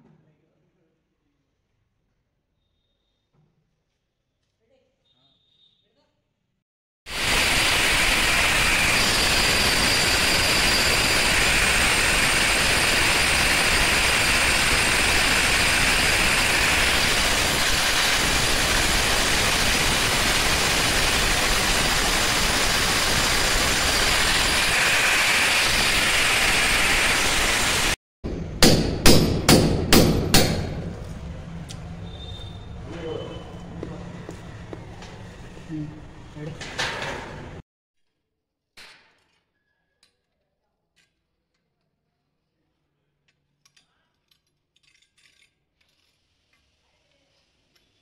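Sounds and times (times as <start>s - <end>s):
hammer drill boring into concrete: 7.1s - 27.9s
sharp knocks: 28.3s - 31.0s.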